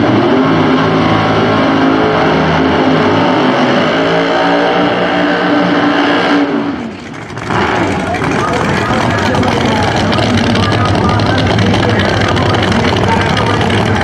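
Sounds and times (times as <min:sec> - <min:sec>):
drag car engine revving: 0:00.0 - 0:14.0
tyres spinning: 0:06.9 - 0:14.0.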